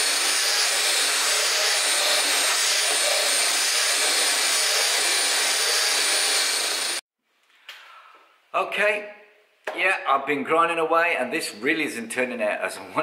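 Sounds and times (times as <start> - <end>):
grinder grinding with high whine: 0.0 - 7.0.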